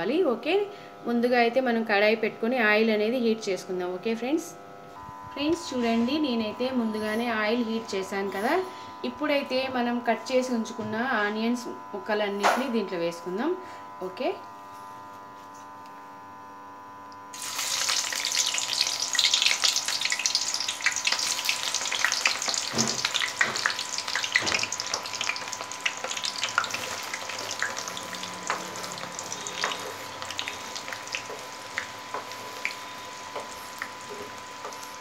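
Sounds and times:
onions sizzling in hot oil: 17.3 - 35.0
oil bubbling with pops and crackles: 17.4 - 34.8.

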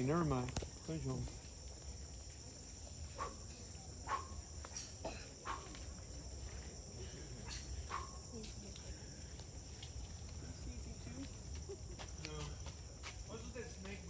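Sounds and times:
insect chorus drone: 0.0 - 14.0.

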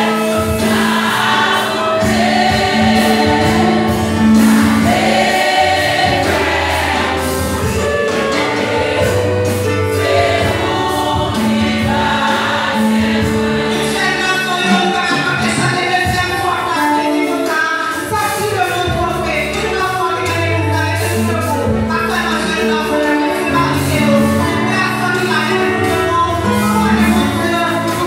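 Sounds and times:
congregation singing a hymn: 0.0 - 28.0
low accompaniment: 0.2 - 16.7.

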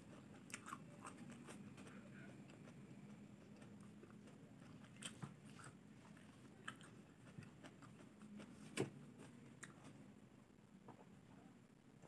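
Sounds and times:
quiet chewing: 0.0 - 10.0.

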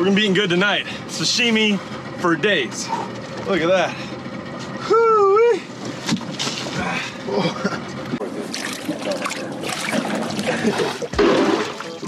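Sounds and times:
water splashing on boat deck: 8.2 - 12.0.

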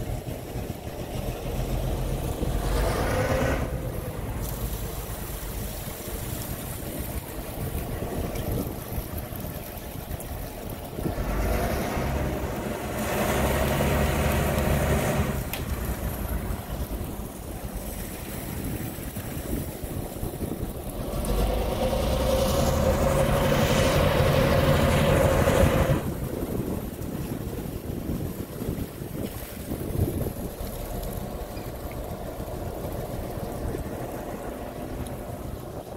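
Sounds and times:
diesel engine powering up: 0.0 - 9.1, 9.9 - 18.6, 20.6 - 26.9
churning water: 0.0 - 35.9.

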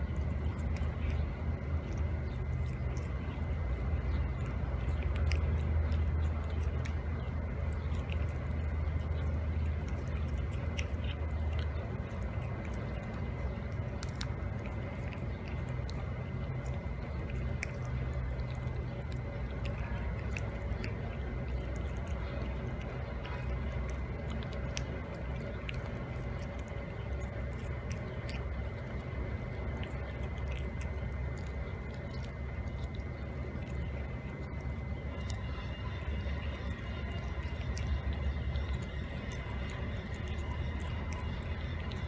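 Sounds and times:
cat chewing wetly: 0.0 - 42.0
low background rumble: 0.0 - 42.0.

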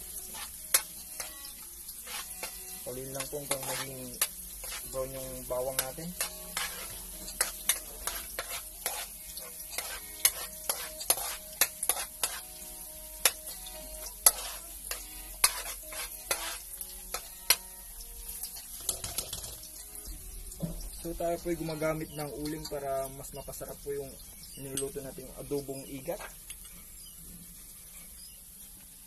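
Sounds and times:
metal spatula scraping a wok: 0.0 - 17.7
oil sizzling: 0.0 - 29.0.

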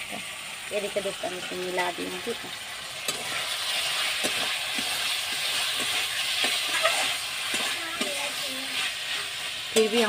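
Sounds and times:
curry sizzling in a pan: 0.0 - 10.0
metal spatula knocking and scraping: 4.2 - 8.2.

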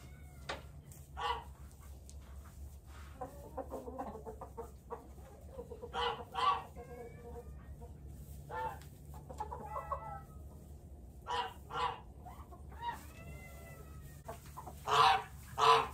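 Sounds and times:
chickens clucking: 0.0 - 15.9
chicken squawking: 1.0 - 1.6, 4.0 - 15.9.

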